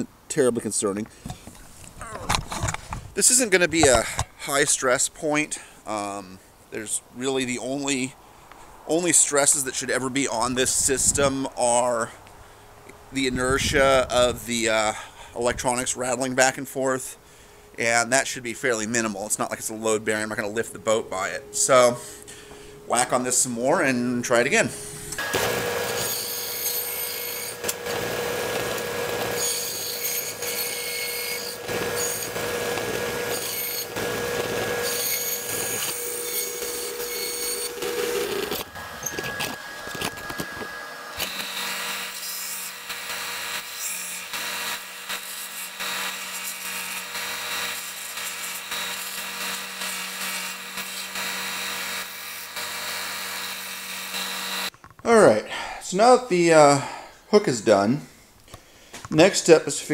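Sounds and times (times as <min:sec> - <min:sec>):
power tool grinding: 0:24.7 - 0:54.7.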